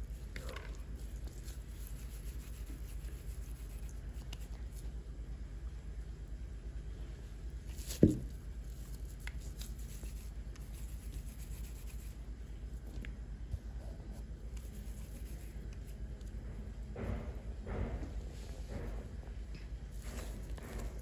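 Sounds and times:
hands rubbing dough: 0:00.0 - 0:05.0, 0:07.7 - 0:16.4
steady low hum: 0:00.0 - 0:21.0.

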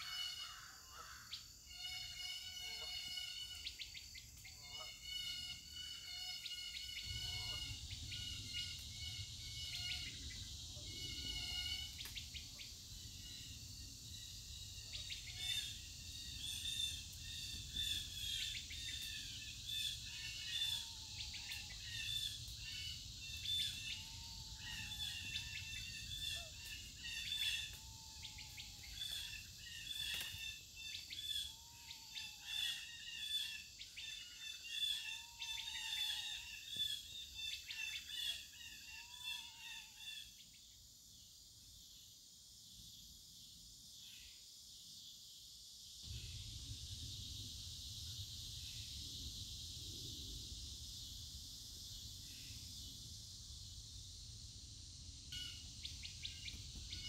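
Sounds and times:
high hum of insects: 0:00.0 - 0:57.0
birds singing and chirping: 0:01.3 - 0:39.8.

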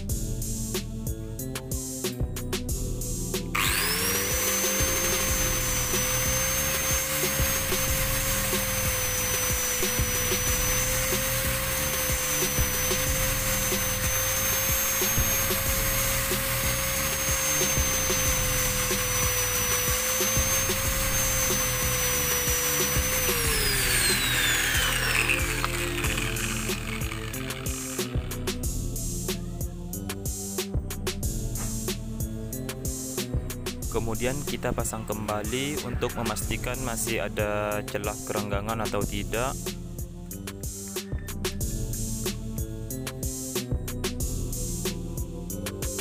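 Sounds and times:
power tool grinding: 0:03.5 - 0:28.8.

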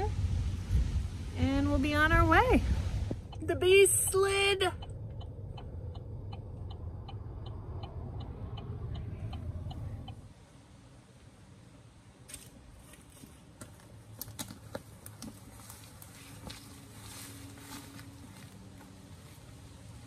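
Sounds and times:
truck engine rumble: 0:00.0 - 0:20.0
light ticking: 0:03.1 - 0:10.3
soft rustles and clicks: 0:12.3 - 0:19.6.

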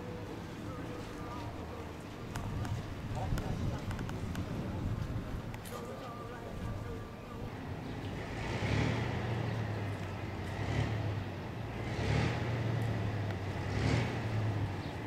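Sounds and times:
bus engine idling and revving: 0:07.3 - 0:15.0.

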